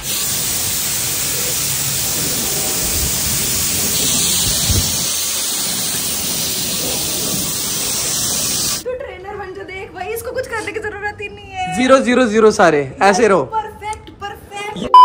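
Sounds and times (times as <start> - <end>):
hose water spraying on car: 0.0 - 8.8.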